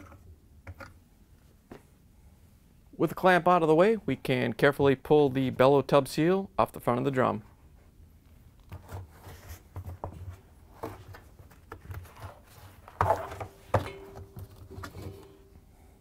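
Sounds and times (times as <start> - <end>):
rubber seal rubbing and scuffing: 8.6 - 13.8.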